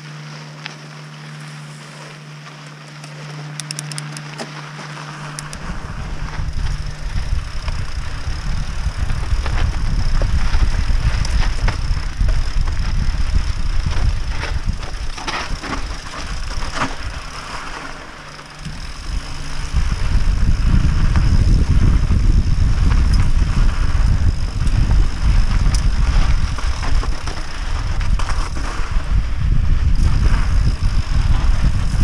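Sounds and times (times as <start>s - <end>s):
bike rattling: 0.0s - 32.0s
sharp clicks: 2.6s - 4.5s, 5.3s - 5.7s
wind rumbling on microphone: 5.2s - 32.0s.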